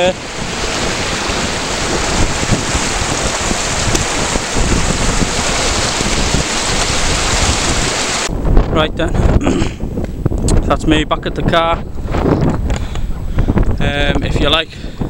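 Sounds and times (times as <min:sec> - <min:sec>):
stream rushing over stones: 0:00.0 - 0:08.3
wind on microphone: 0:00.0 - 0:15.0.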